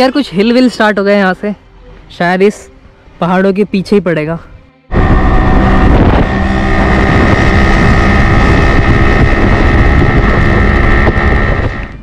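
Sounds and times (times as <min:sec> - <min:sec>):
motorcycle engine hum: 0:04.8 - 0:12.0
wind noise on microphone: 0:04.9 - 0:12.0.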